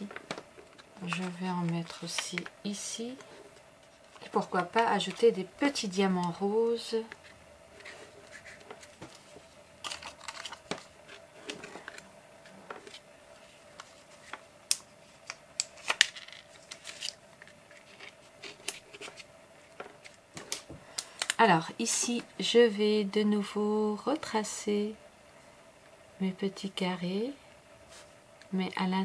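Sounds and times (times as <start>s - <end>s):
faint steady hum: 0.0s - 29.0s
fingers handling plastic sheet: 0.1s - 6.4s, 7.0s - 21.4s.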